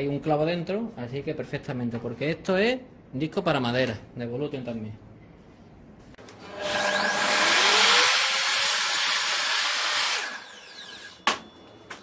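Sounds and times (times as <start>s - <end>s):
mitre saw cutting wood: 6.3s - 11.2s.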